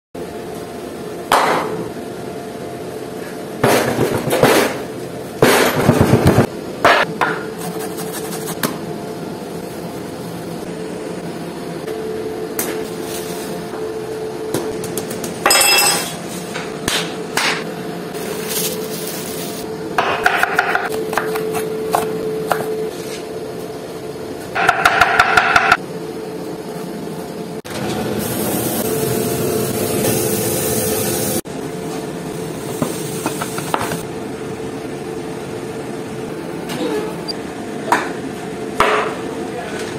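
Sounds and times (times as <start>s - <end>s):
meat sizzling on grill: 28.2s - 31.4s.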